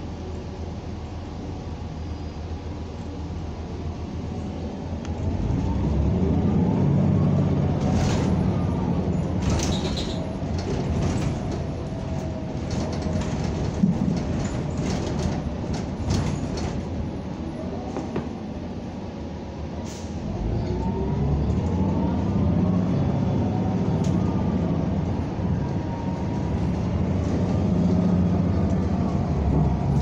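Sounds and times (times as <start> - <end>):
bus engine accelerating: 0.0 - 30.0
body rattles and knocks: 9.4 - 17.0.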